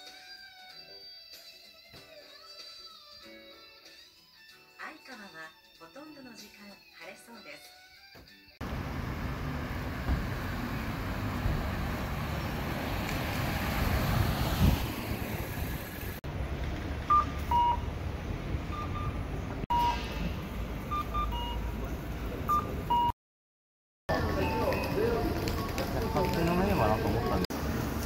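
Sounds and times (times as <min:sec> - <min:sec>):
vehicle passing: 0:08.6 - 0:19.6
street traffic: 0:08.6 - 0:23.2, 0:24.1 - 0:28.0.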